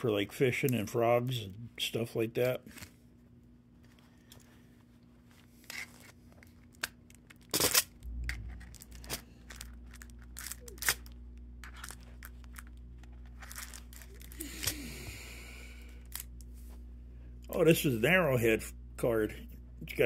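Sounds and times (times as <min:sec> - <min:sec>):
packaging crackling and rustling: 0:04.3 - 0:14.6.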